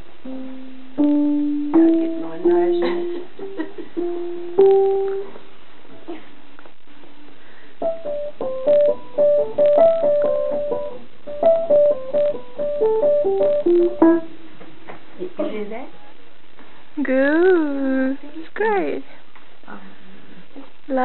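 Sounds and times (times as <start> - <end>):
upright piano notes: 0.0 - 6.2, 7.8 - 14.9.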